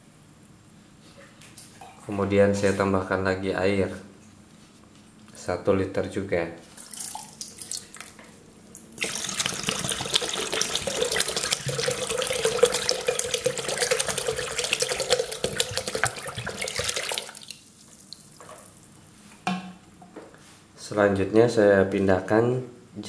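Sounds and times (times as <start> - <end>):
water pouring into bucket: 6.8 - 8.1, 9.0 - 18.2.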